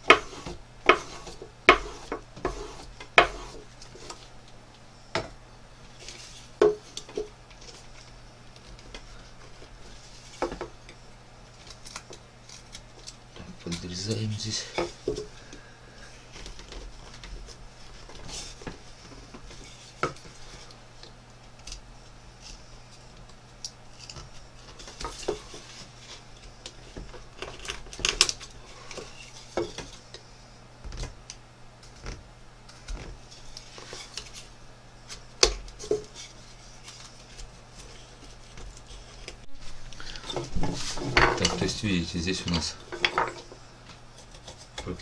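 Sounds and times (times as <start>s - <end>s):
knife carving wood: 0.0s - 4.2s, 11.6s - 13.9s, 44.1s - 45.0s.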